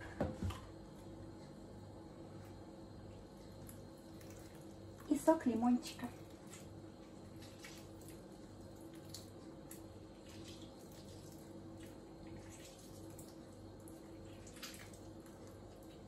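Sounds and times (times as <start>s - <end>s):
juice drips and squelches: 2.4s - 16.0s.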